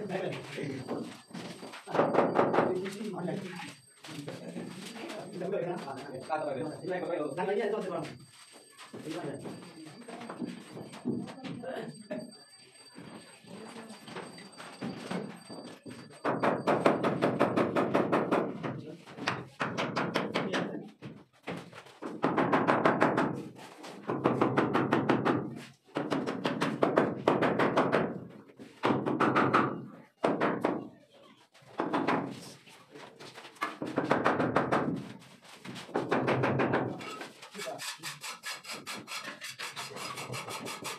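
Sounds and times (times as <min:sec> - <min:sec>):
hand tool rasping on wood: 0:37.6 - 0:40.9.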